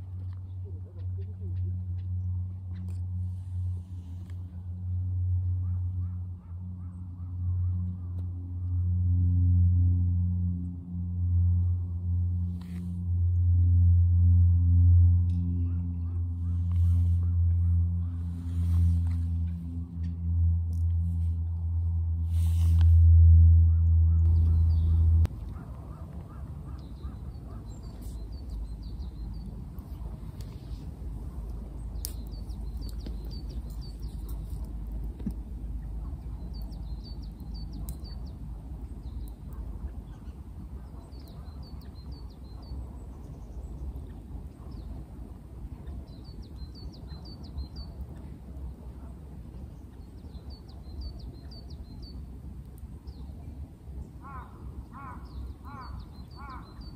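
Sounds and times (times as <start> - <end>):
steady low rumble: 0.0 - 56.9
songbird chirping: 23.6 - 45.1.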